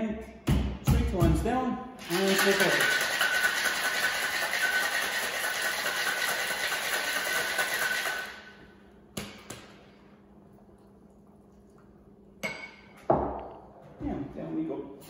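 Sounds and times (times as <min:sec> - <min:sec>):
ice rattling in cocktail shaker: 0:02.0 - 0:08.4.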